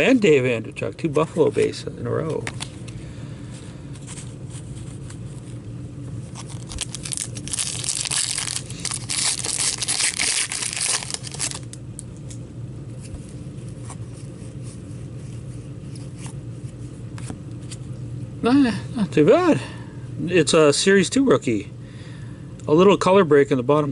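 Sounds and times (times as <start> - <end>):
low steady hum: 0.0 - 23.9
foil wrapper tearing and crinkling: 6.3 - 11.8.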